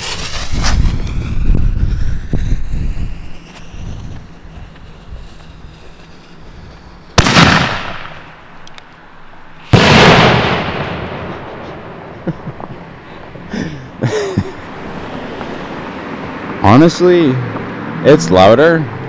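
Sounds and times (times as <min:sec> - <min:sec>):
mortar launch boom: 0:07.2 - 0:08.3, 0:09.7 - 0:12.1.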